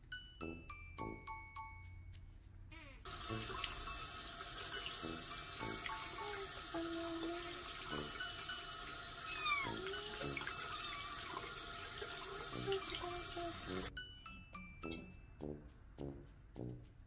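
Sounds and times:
tap water running into sink: 3.1s - 13.9s
kitten mewing: 9.2s - 11.3s.

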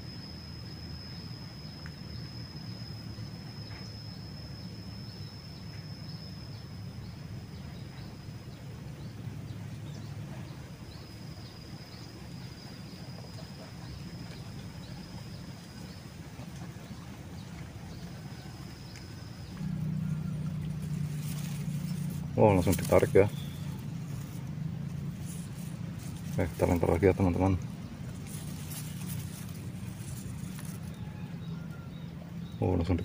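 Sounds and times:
steady low rumble: 4.2s - 33.0s
high thin insect drone: 18.4s - 31.1s.

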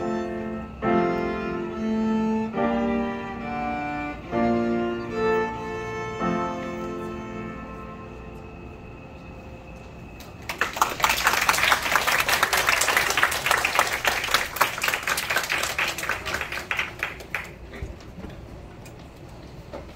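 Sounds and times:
violin and cello note: 0.0s - 9.8s
audience applause: 10.2s - 18.0s.

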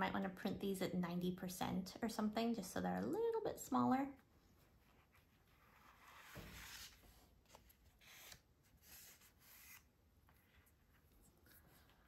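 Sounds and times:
paper rustling and scraping: 5.0s - 11.7s.

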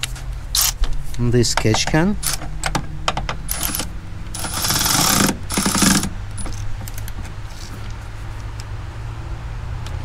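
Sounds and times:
cordless ratchet whirring: 3.5s - 6.2s.

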